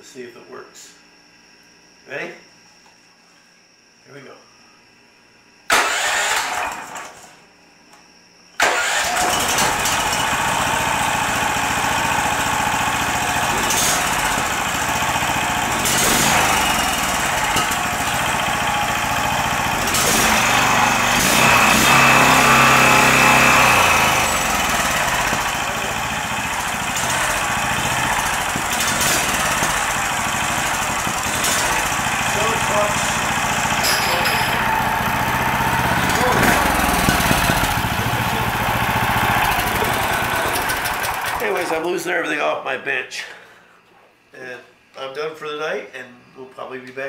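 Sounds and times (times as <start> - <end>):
electric starter cranking: 5.7 - 7.4, 8.6 - 41.8
small gasoline engine running: 8.6 - 41.8.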